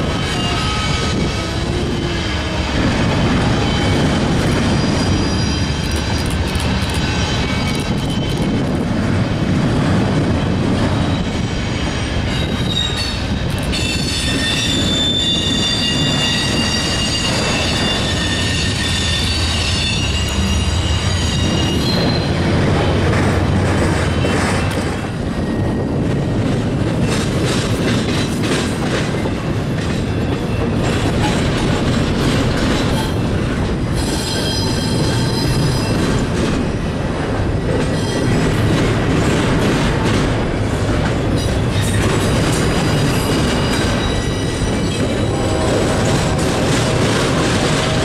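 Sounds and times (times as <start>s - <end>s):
freight train wheels clattering: 0.0s - 48.0s
high metal wheel squeal: 0.1s - 1.6s, 3.4s - 6.2s, 11.0s - 22.6s, 42.9s - 45.8s.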